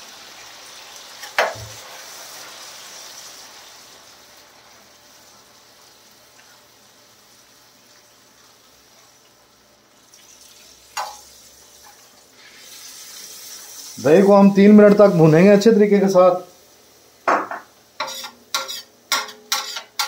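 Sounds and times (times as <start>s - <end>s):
food sizzling on a pan: 0.0s - 20.0s
metal spoon clinking on pan: 11.0s - 11.2s, 18.0s - 20.0s.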